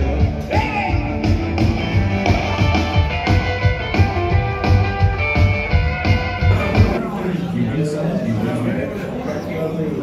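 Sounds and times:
rock band playing live: 0:00.0 - 0:07.0.

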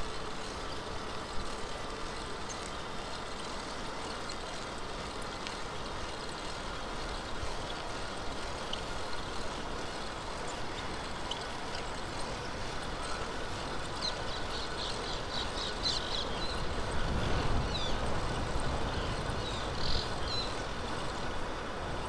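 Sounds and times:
strong wind rushing: 0:16.6 - 0:20.2.

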